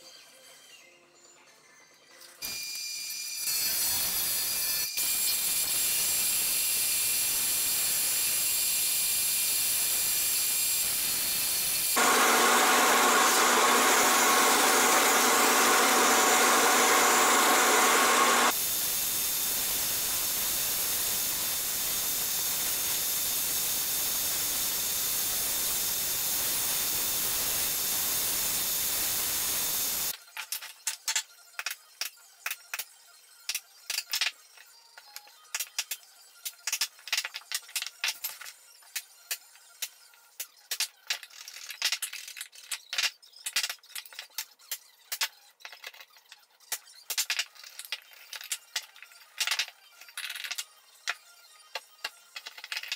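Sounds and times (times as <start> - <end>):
drill press whirring: 11.9 - 18.6.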